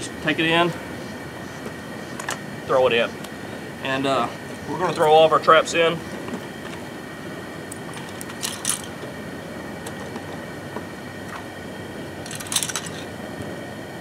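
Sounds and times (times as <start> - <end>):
gas burner hissing: 0.0 - 14.0
metal traps and chains rattling: 7.7 - 9.0, 12.2 - 13.1.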